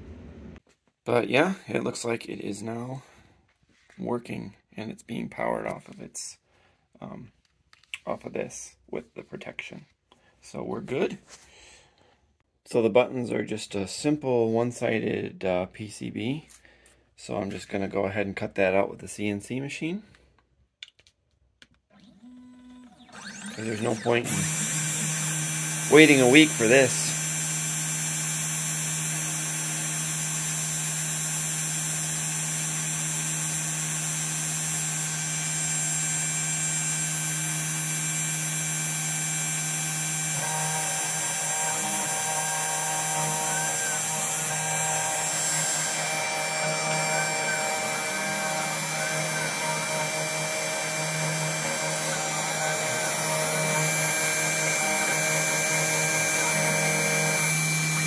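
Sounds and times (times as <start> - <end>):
high whining tones: 22.9 - 58.0
router spindle milling: 23.0 - 58.0.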